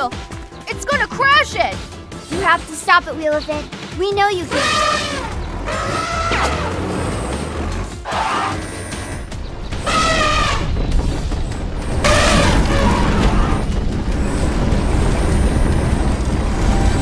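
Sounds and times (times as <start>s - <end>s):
background music: 0.0s - 17.0s
boulder rolling deep rumble: 9.2s - 17.0s.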